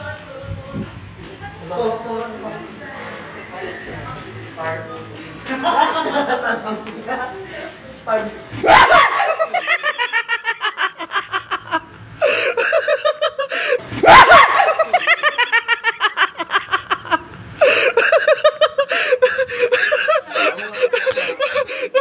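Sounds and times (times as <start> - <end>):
people laughing hard: 5.4 - 6.7, 8.6 - 22.0.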